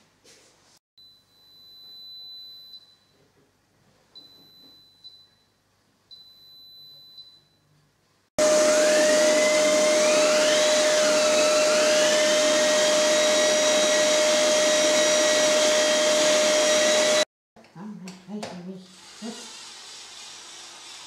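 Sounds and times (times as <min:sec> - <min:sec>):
electric drill boring: 0:08.4 - 0:17.3, 0:18.9 - 0:21.0
vacuum cleaner running: 0:08.4 - 0:17.3.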